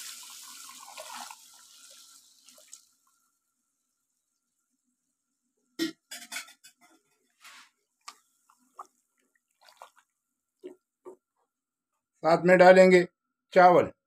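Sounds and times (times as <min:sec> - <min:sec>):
liquid splashing in pot: 0:08.7 - 0:10.8.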